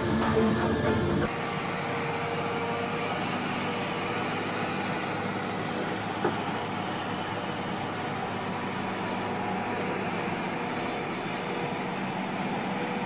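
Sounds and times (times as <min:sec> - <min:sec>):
music: 0:00.0 - 0:01.3
track-laying machinery rumble: 0:00.0 - 0:13.0.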